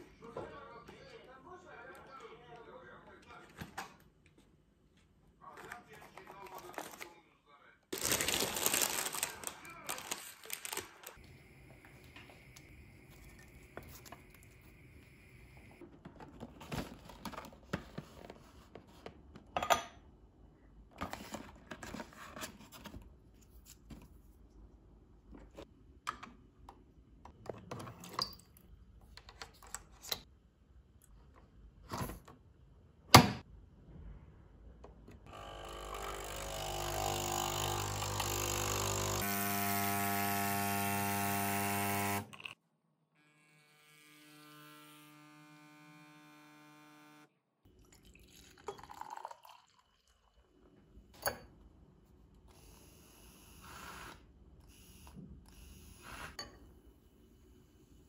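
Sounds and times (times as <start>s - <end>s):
coffee machine pump buzzing: 35.3s - 42.6s
milk pouring into a glass: 47.7s - 50.6s.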